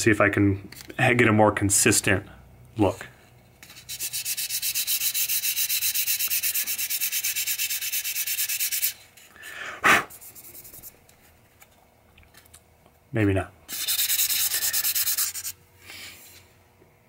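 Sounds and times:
sandpaper rubbing on wood: 0:03.6 - 0:09.0, 0:10.1 - 0:10.9, 0:13.7 - 0:15.6.

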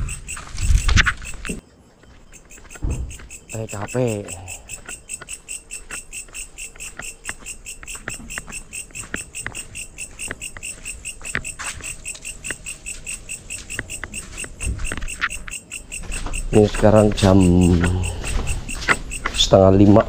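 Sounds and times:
night insects chirping: 0:00.0 - 0:20.0.

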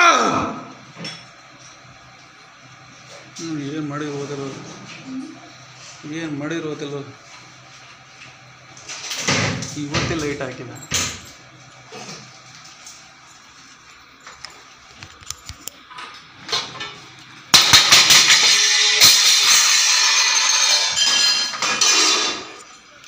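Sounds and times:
metal kitchen utensils clattering: 0:16.4 - 0:22.8.

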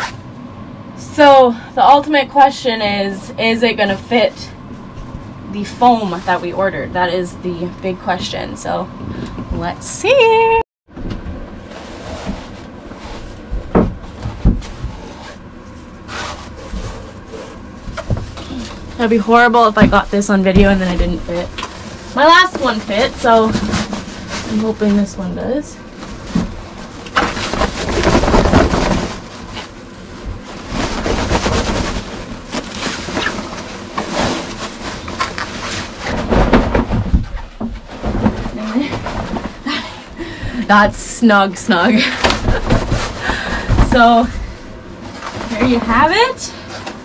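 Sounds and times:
foam slab thuds and rustling: 0:11.7 - 0:15.4, 0:16.0 - 0:41.0, 0:41.9 - 0:46.3
dull thumps: 0:12.2 - 0:41.0, 0:42.0 - 0:46.3.

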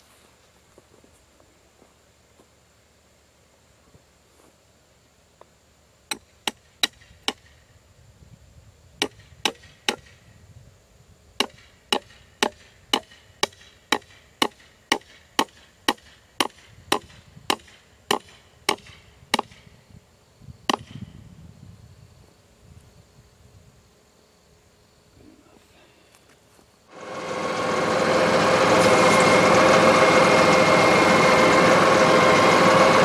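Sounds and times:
hammer striking wooden post: 0:06.1 - 0:07.6, 0:09.0 - 0:10.2, 0:11.4 - 0:19.6, 0:20.7 - 0:21.0.

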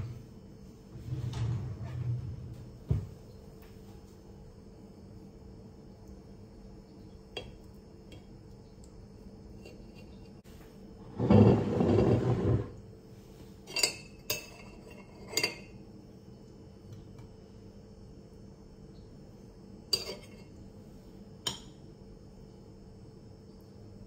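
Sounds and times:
ceramic bowl scraping on countertop: 0:11.0 - 0:12.8.

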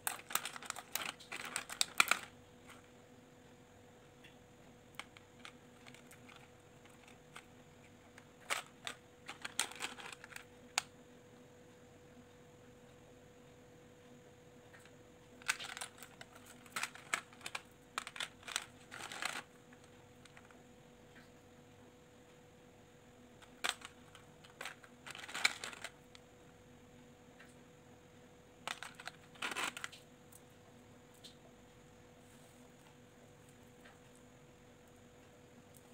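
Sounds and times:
plastic beads clicking and rattling: 0:00.0 - 0:02.9, 0:04.9 - 0:10.8, 0:14.8 - 0:20.6, 0:23.4 - 0:26.2, 0:28.6 - 0:30.0.

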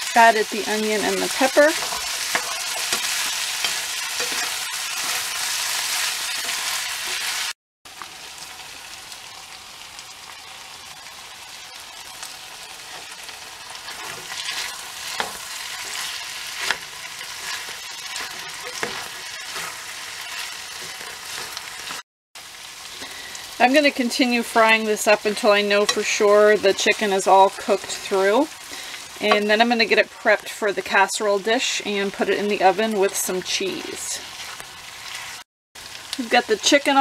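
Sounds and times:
spatula scraping a pan: 0:00.0 - 0:07.5, 0:12.8 - 0:22.0
food sizzling in a frying pan: 0:00.0 - 0:37.0.

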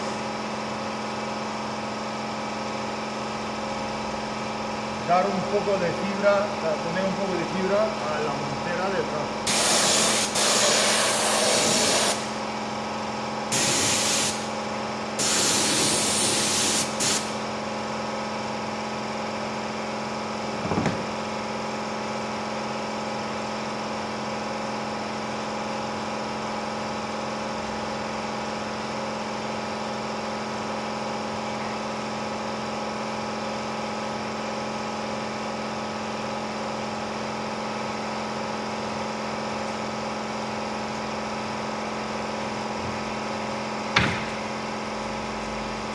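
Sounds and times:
air spray gun hissing: 0:09.4 - 0:12.4, 0:13.5 - 0:14.6, 0:15.2 - 0:17.5
knock: 0:20.6 - 0:21.1, 0:44.0 - 0:44.4.

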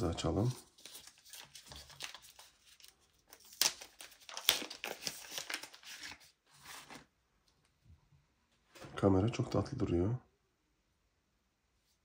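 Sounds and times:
packaging rustling: 0:00.4 - 0:07.1.

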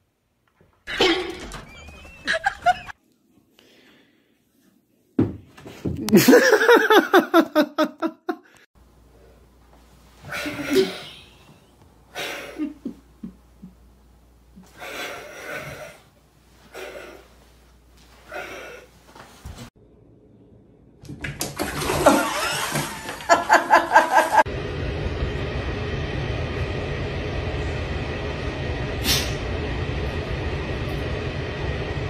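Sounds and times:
person laughing hard: 0:02.1 - 0:02.9, 0:06.0 - 0:08.5, 0:10.4 - 0:11.5, 0:12.2 - 0:13.8, 0:22.0 - 0:24.5.

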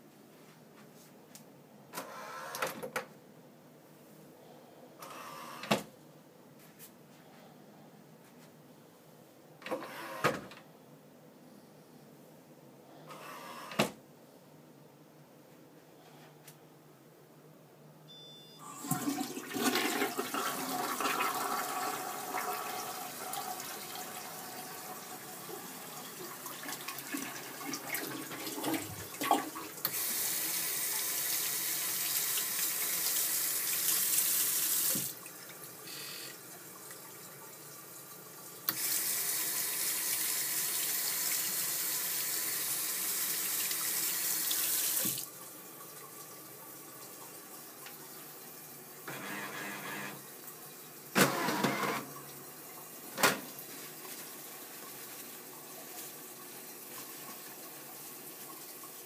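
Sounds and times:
faucet running water into basin: 0:18.6 - 0:35.7, 0:36.4 - 0:46.3
toilet flushing and refilling: 0:18.6 - 0:59.0.

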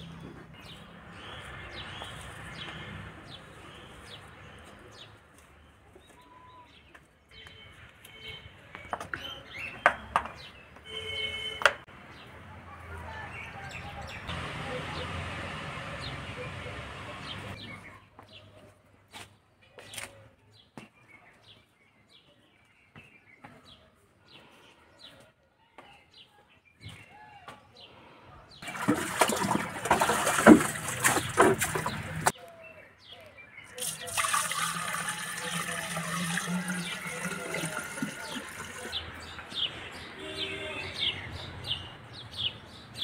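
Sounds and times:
birds chirping: 0:00.0 - 0:12.4, 0:13.2 - 0:18.8, 0:19.6 - 0:43.0
water gushing into a pot: 0:28.6 - 0:32.3, 0:33.8 - 0:39.0.

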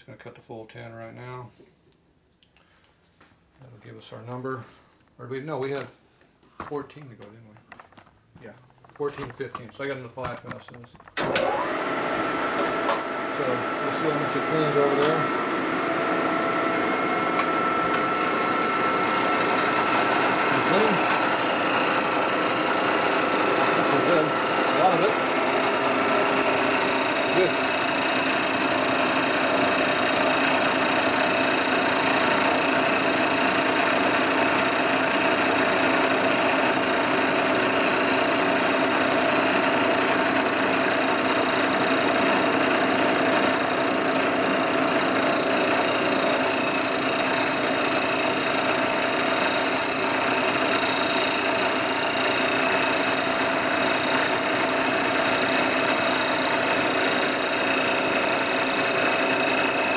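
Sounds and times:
milling cutter cutting metal: 0:11.2 - 0:59.9.

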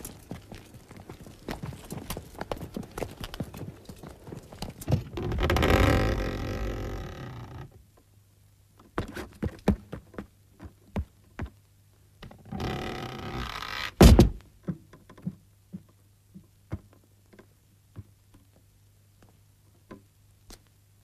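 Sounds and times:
feet tramping on hard ground: 0:00.0 - 0:05.2
hooves clopping: 0:00.0 - 0:07.8, 0:08.8 - 0:11.8, 0:14.5 - 0:19.8.

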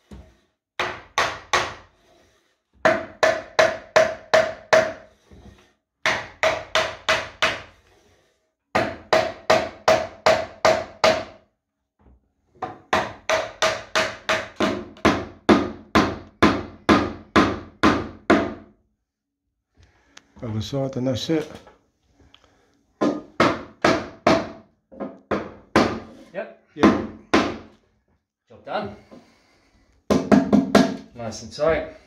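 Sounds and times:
hammer knocking on wooden block: 0:00.8 - 0:01.8, 0:02.8 - 0:05.0, 0:06.0 - 0:07.7, 0:08.7 - 0:11.4, 0:12.6 - 0:18.7, 0:23.0 - 0:26.1, 0:26.8 - 0:27.7, 0:30.1 - 0:31.1.

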